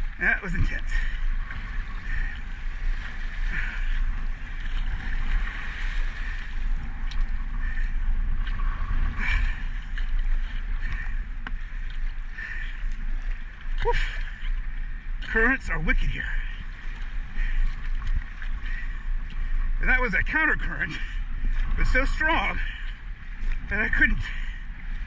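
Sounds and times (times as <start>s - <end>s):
paddle swishing and splashing: 0.0s - 19.8s
waves washing against hull: 0.0s - 25.0s
wind rumble on microphone: 0.0s - 25.0s.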